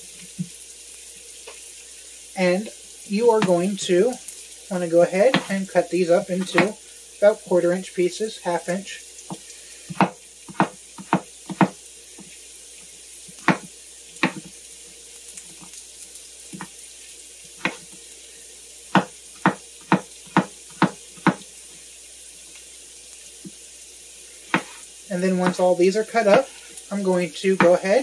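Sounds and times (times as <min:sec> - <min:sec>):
vegetables sizzling in butter: 0:00.0 - 0:28.0
knife cutting on cutting board: 0:24.5 - 0:24.8.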